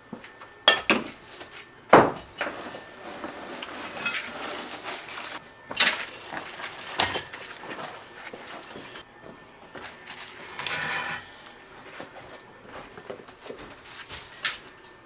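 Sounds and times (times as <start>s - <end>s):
masonry chunks clinking and scraping: 2.0s - 9.1s, 9.7s - 13.7s
loose rubble rattling: 3.6s - 9.0s.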